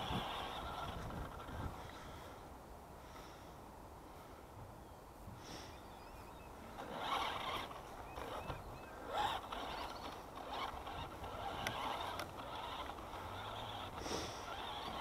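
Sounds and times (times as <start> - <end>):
toy truck electric motor whirring: 0.0 - 1.9, 6.8 - 15.0.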